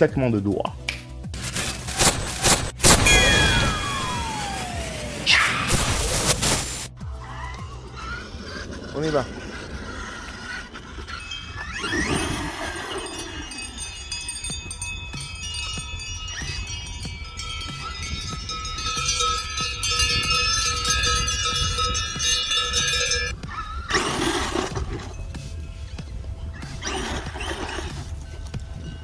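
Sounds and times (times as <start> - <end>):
cowbells ringing: 3.0 - 4.2, 10.6 - 23.4.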